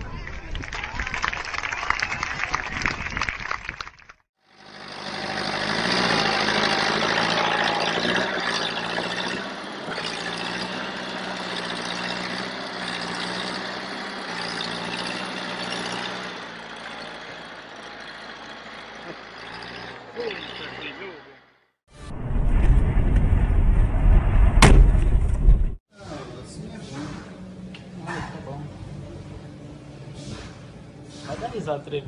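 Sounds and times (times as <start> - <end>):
tractor engine under heavy load: 4.4 - 21.8.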